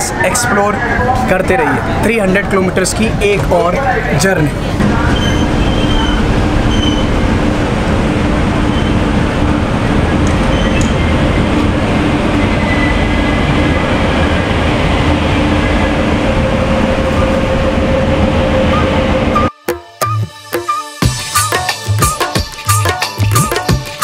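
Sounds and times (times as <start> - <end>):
train rumbling on rails: 0.0 - 19.5.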